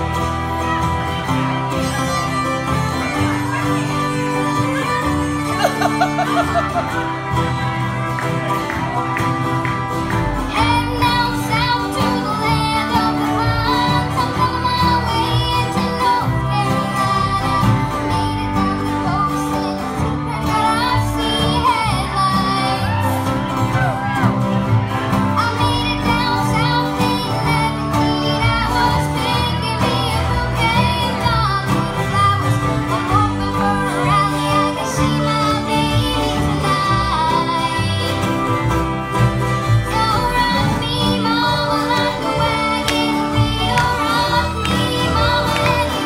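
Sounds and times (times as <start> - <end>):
bluegrass band playing: 0.0 - 46.0
girl singing: 10.5 - 23.2, 25.4 - 38.3, 39.8 - 46.0.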